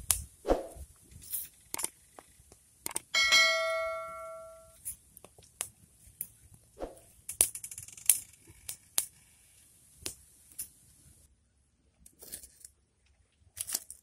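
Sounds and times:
chime sound effect: 3.2s - 4.7s.

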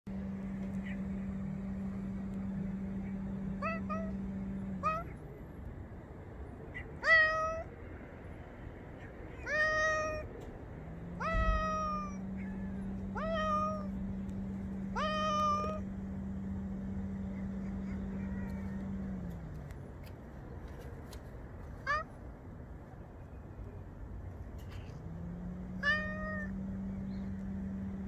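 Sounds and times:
steady low hum: 0.1s - 6.9s, 10.3s - 28.0s
cat meowing: 3.4s - 5.2s, 6.8s - 7.7s, 9.0s - 10.3s, 11.0s - 14.1s, 14.9s - 15.9s, 17.3s - 19.5s, 21.8s - 22.2s, 25.7s - 26.9s.

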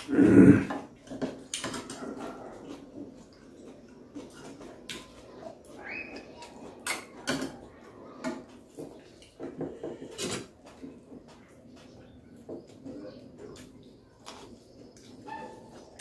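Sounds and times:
person eating: 0.0s - 5.8s.

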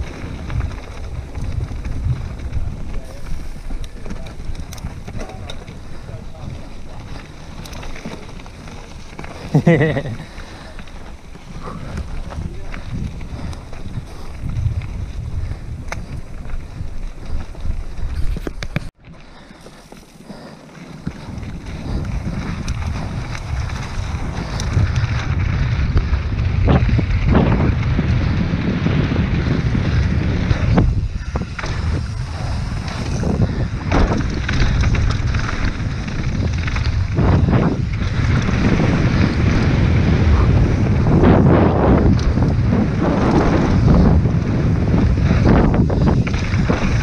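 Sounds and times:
wind rushing over microphone: 0.0s - 19.0s, 19.6s - 47.0s
tyres rumbling on dirt trail: 0.0s - 47.0s
bike knocking over bumps: 26.7s - 47.0s.

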